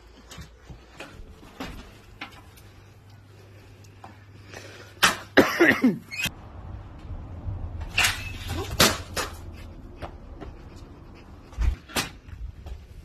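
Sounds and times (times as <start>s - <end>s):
person coughing: 5.1s - 6.1s.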